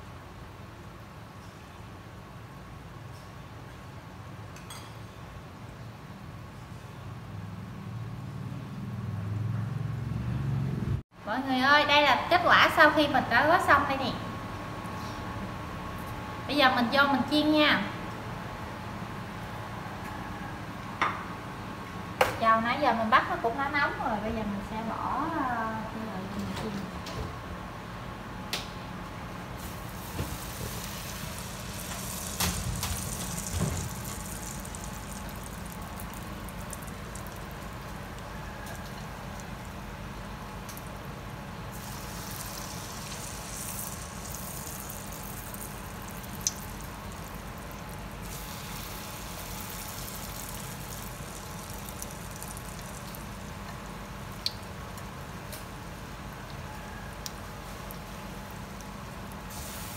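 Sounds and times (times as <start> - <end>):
oil sizzling and bubbling: 29.4 - 56.6, 57.3 - 59.9.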